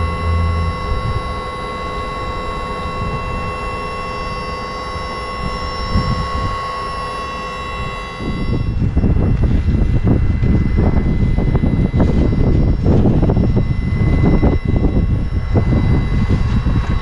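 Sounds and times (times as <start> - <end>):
high electric whine: 0.0 - 17.0
low rushing hum: 0.0 - 17.0.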